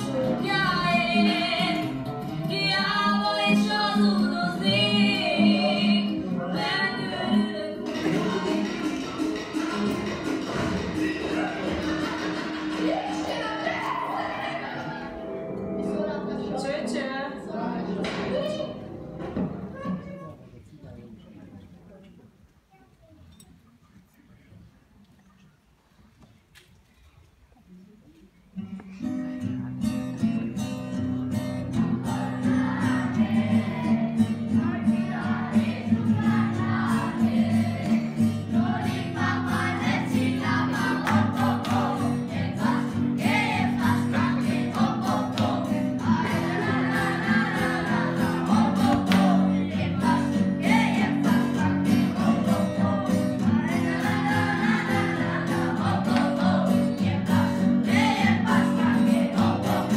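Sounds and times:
acoustic guitar: 0.0 - 20.5, 25.1 - 59.9
group of people singing: 2.7 - 15.4, 31.9 - 59.9.

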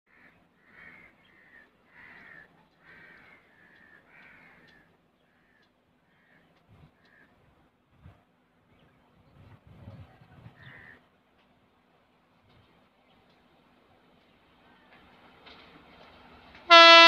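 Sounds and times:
crow cawing: 0.1 - 6.4.

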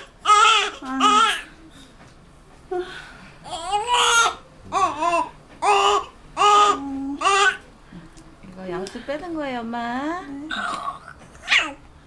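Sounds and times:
newborn baby crying: 0.0 - 1.5, 3.4 - 7.6.

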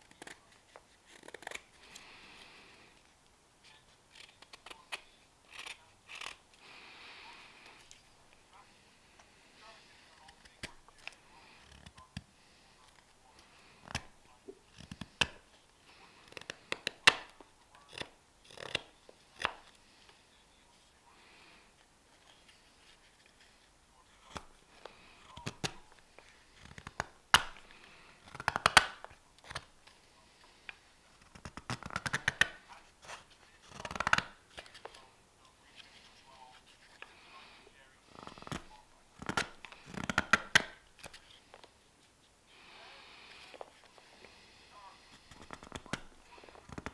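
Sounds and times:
knife scraping wood: 4.1 - 6.4, 16.3 - 19.8.

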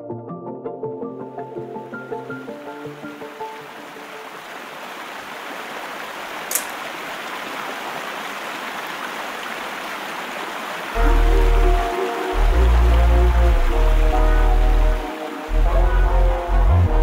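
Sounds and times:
waterfall rushing: 2.8 - 15.6.

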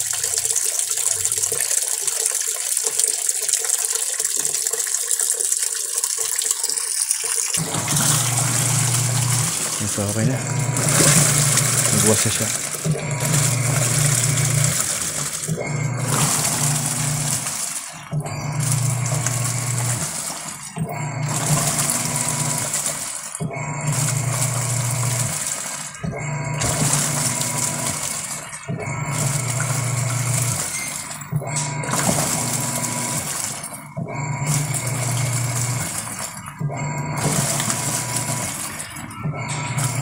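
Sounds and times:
washing machine agitating: 0.0 - 40.0.

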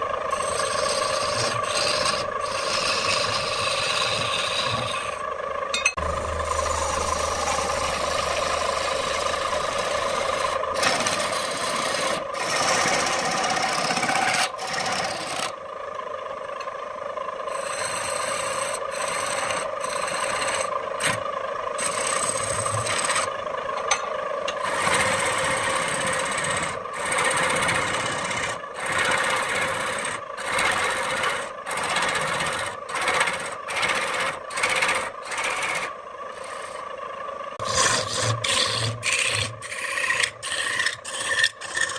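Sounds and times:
lathe humming: 0.0 - 15.6, 17.3 - 41.9
chisel scraping wood: 0.4 - 5.2, 8.0 - 15.5, 17.5 - 21.2, 21.8 - 23.3, 37.6 - 41.9.

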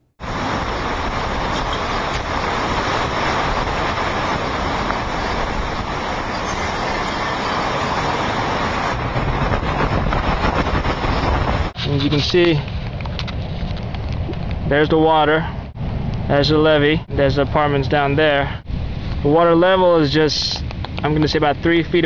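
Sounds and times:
heavy driving rain: 0.0 - 11.8
hurricane wind: 0.0 - 22.0.

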